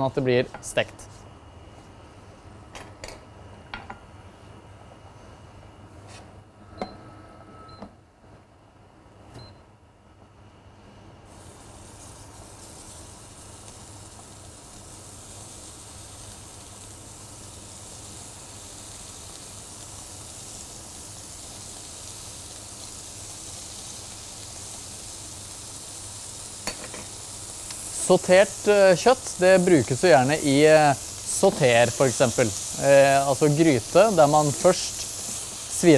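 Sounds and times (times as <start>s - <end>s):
meat sizzling in a frying pan: 11.3s - 35.9s.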